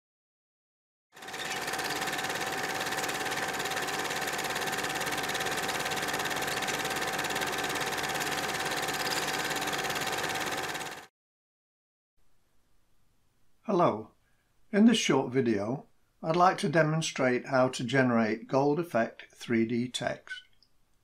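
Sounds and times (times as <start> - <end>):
film projector clattering: 1.2 - 11.1.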